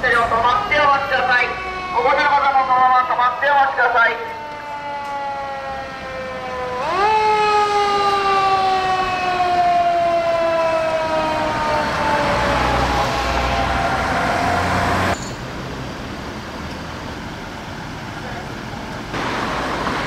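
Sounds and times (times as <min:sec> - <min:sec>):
fire engine siren wailing: 0:00.0 - 0:15.2
heavy engine and road noise: 0:00.0 - 0:20.0
low traffic noise: 0:00.0 - 0:20.0.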